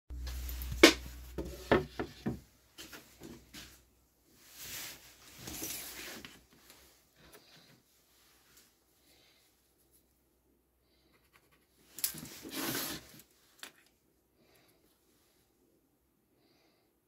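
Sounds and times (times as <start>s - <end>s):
board knocking on workbench: 0.8s - 2.4s.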